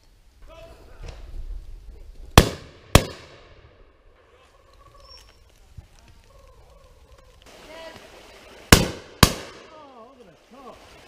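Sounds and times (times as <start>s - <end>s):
shotgun shots echoing: 2.4s - 3.8s, 8.7s - 9.8s.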